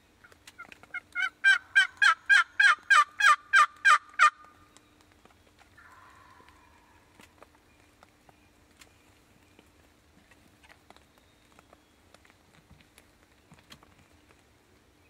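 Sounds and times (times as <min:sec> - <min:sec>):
turkey yelping: 0:00.6 - 0:04.5, 0:05.8 - 0:07.1.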